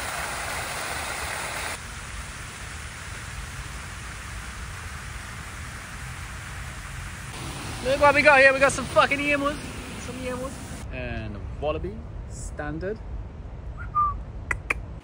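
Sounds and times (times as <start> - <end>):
rain hissing: 0.0 - 10.9.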